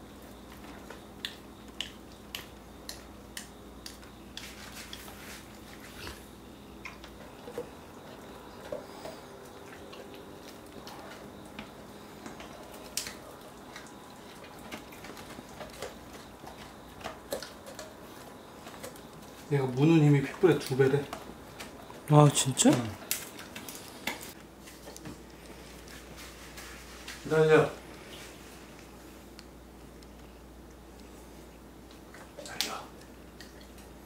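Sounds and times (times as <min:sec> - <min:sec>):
dog teeth crunching chew bone: 0:12.4 - 0:19.4.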